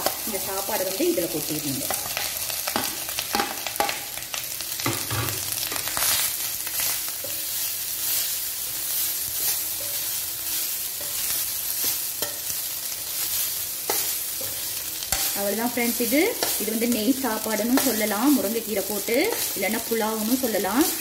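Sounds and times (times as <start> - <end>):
rice sizzling in pan: 0.0 - 21.0
metal spoon scraping pan: 13.8 - 15.4.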